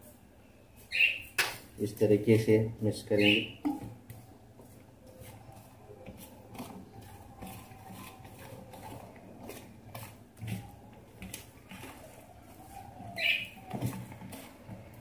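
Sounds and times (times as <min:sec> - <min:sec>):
whisk scraping metal bowl: 0:04.6 - 0:13.0, 0:13.7 - 0:15.0.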